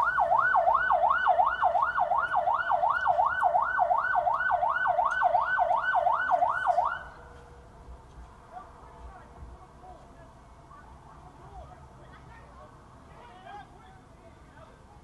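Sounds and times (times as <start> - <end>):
siren on fast yelp: 0.0 - 7.2.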